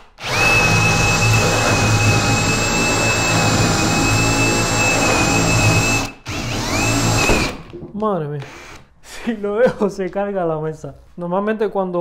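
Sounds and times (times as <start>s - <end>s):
cordless drill boring into chipboard: 0.2s - 7.7s, 8.4s - 8.9s.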